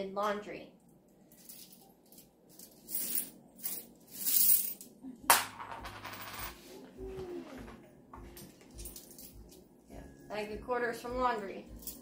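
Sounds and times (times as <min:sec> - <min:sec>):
coins jingling in a bag: 0:01.3 - 0:04.8, 0:08.8 - 0:09.6.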